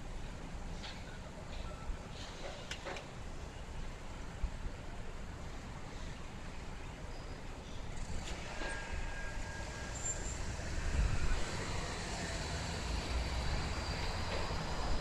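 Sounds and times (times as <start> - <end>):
tram low rumble: 0.0 - 15.0.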